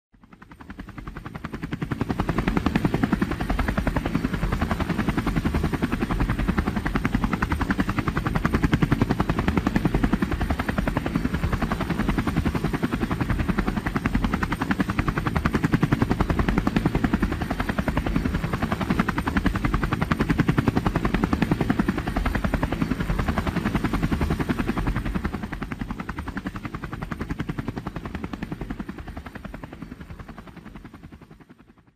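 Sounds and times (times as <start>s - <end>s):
helicopter rotor blades beating: 0.2s - 31.9s.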